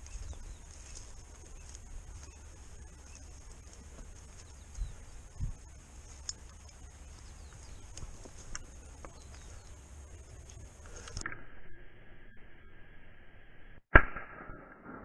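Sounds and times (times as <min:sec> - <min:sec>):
twigs clicking: 0:00.0 - 0:05.0, 0:05.9 - 0:09.6, 0:10.2 - 0:11.2
footsteps through dry grass: 0:00.0 - 0:11.2
steady low rumble: 0:00.0 - 0:12.8.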